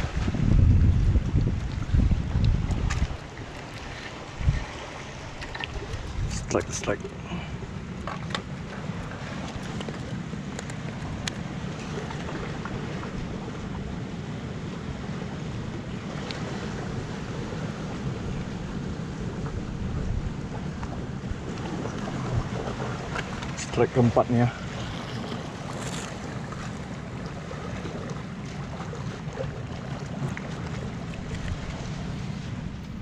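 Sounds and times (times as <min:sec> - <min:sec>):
sea waves on rocky shore: 0:00.0 - 0:33.0
wind rumbling on microphone: 0:00.0 - 0:33.0.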